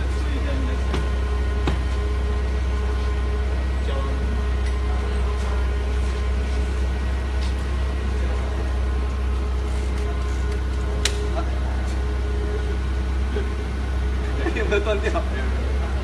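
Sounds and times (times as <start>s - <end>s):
forklift engine idling: 0.0s - 16.0s.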